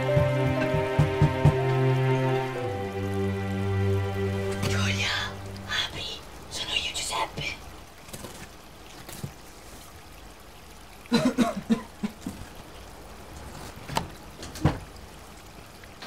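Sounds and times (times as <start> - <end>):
knocking on a wooden door: 0.0 - 1.8
rain hissing: 0.0 - 16.0.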